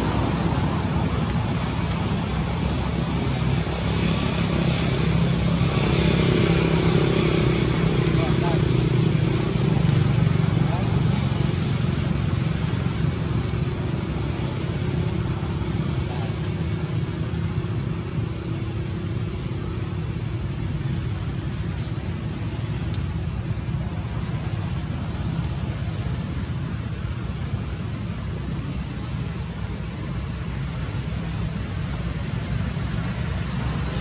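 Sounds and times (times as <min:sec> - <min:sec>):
low outdoor rumble: 0:00.0 - 0:34.0.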